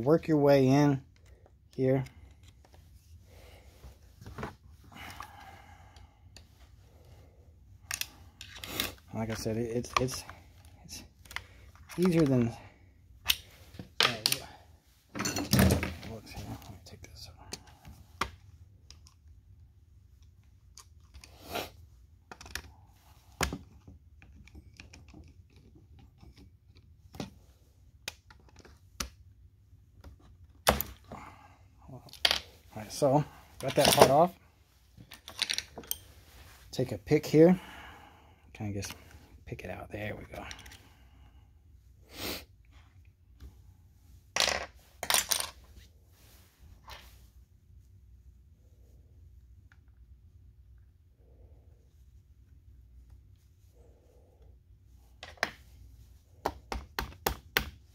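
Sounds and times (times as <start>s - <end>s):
metal parts clinking and scraping: 15.2s - 15.8s, 35.0s - 36.2s, 44.4s - 45.7s.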